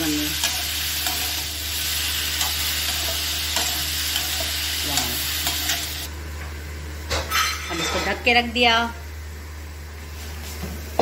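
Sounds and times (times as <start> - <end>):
vegetables sizzling in oil: 0.0 - 6.2.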